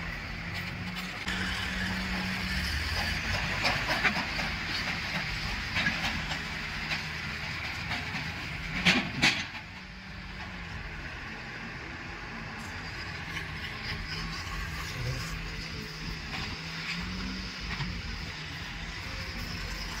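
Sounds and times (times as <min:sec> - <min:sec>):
trolleys clanking and rattling: 0:00.0 - 0:10.6
diesel engines running: 0:00.0 - 0:20.0.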